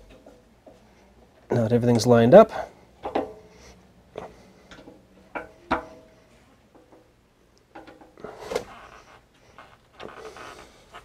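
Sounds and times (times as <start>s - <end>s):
scraping rustle: 8.2s - 11.0s.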